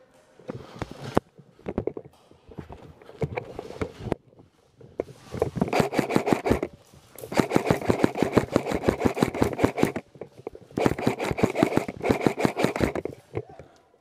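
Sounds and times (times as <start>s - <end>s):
airsoft rifle automatic fire: 5.7s - 6.7s, 7.3s - 10.0s, 10.8s - 13.1s.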